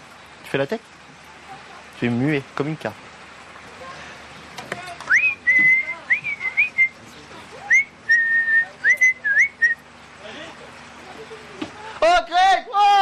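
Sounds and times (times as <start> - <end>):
person whistling a tune: 5.1 - 7.0, 7.7 - 9.8.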